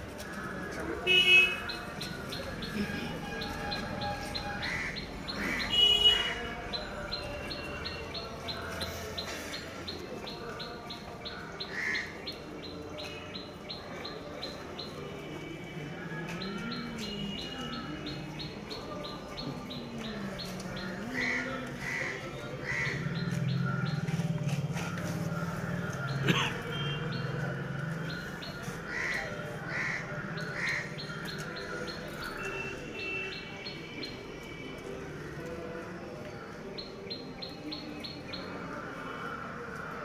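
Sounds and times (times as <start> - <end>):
faint murmur of voices: 0.0 - 40.0
birds chirping: 0.3 - 39.0.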